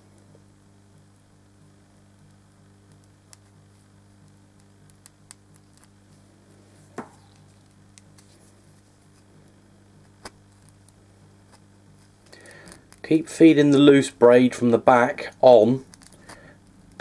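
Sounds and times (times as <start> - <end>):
steady low hum: 0.0 - 17.0
fingers crackling wire braid: 2.2 - 6.3, 7.2 - 13.2, 15.4 - 17.0.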